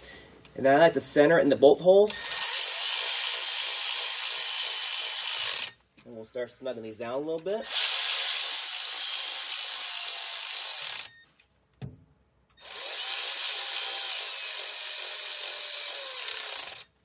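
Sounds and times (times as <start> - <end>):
electric ratchet motor whine: 2.1 - 5.8, 7.6 - 11.2, 12.6 - 17.0.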